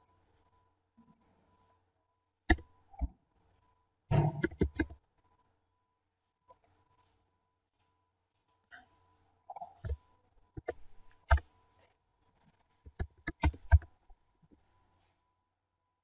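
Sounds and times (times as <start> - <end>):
faint steady hum: 0.0 - 16.0
computer mouse clicks: 4.2 - 5.0, 10.6 - 11.5, 12.8 - 13.9
keyboard keys clicking: 12.9 - 13.9.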